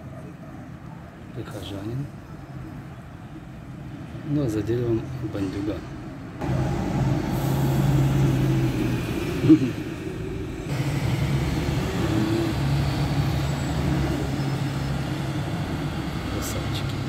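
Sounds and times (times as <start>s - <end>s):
low engine rumble: 4.8s - 17.0s.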